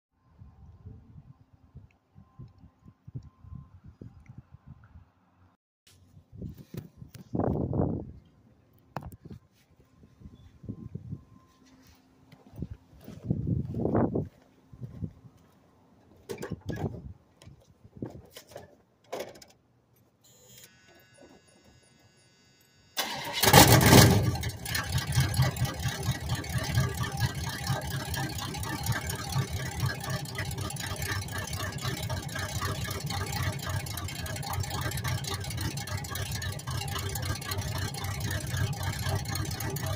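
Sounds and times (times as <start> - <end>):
footsteps: 11.4 - 16.3
car engine starting and idling: 23.0 - 39.9.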